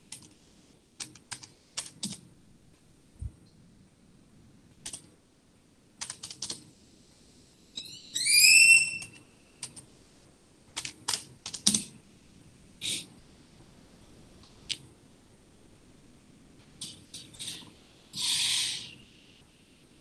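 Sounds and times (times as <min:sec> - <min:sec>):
loud high squeak: 0:07.8 - 0:09.3, 0:18.2 - 0:19.0.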